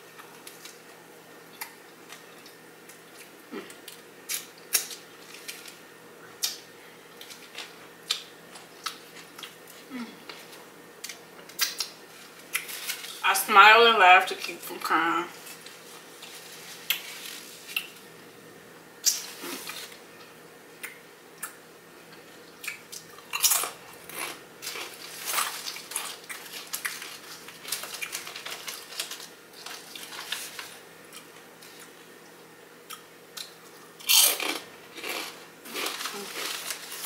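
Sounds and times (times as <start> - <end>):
foil bag rustling: 12.1 - 13.2, 15.3 - 17.7, 24.6 - 30.8, 35.2 - 37.0.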